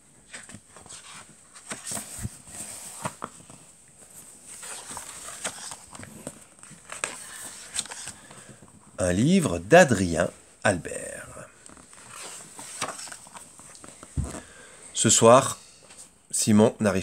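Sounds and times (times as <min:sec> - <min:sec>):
book pages turning: 0:00.2 - 0:08.8, 0:11.6 - 0:14.6
paper rustling and sliding: 0:00.2 - 0:08.8, 0:11.7 - 0:14.6.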